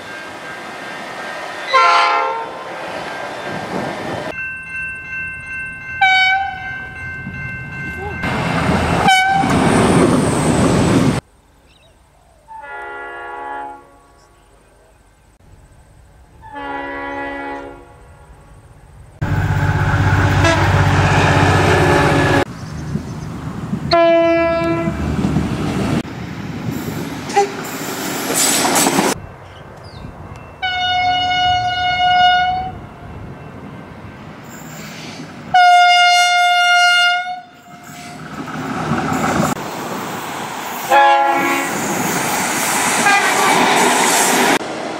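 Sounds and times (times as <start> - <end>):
passing train rumble: 0.0 - 11.4, 12.6 - 44.9
train horn blasts: 1.7 - 2.6, 6.0 - 6.8, 9.0 - 9.6, 12.5 - 14.5, 16.4 - 18.1, 19.2 - 22.5, 23.9 - 25.0, 30.6 - 32.8, 35.5 - 38.2, 40.9 - 41.8, 43.0 - 43.7.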